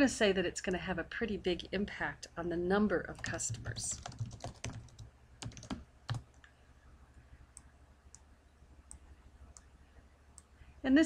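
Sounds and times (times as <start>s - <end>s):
typing on computer keyboard: 3.2s - 6.4s.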